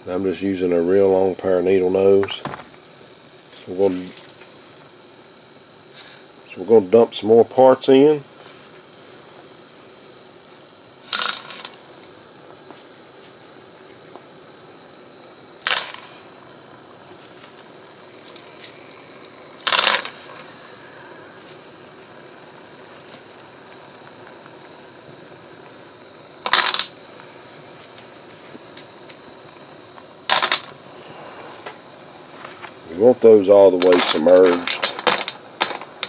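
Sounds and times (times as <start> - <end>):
steady low hiss: 0.0 - 36.0
metal bolts clinking into pot: 33.8 - 35.9.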